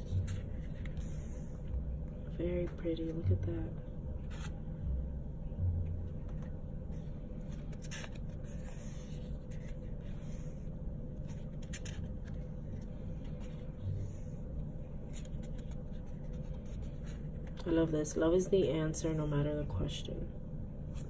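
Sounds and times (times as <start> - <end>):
low hum: 0.0 - 21.0
paper rustling: 7.4 - 14.2.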